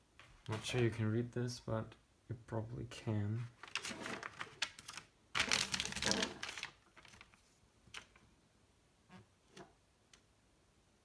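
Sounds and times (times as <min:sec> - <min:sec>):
paper rustling: 0:03.5 - 0:08.2.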